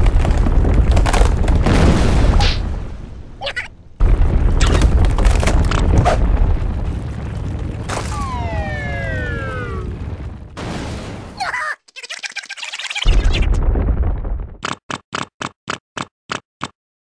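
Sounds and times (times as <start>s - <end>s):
sharp cracks of splitting earth: 0.0s - 2.3s, 4.4s - 8.2s
heavy rumble of shaking ground: 0.0s - 11.4s, 13.2s - 14.6s
falling pitched tone: 8.0s - 10.2s.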